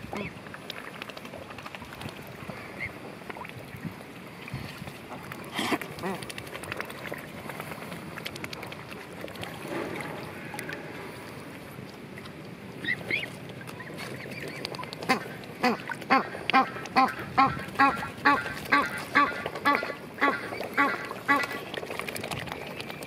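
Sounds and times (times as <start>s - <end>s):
duck quacking: 15.1s - 21.6s.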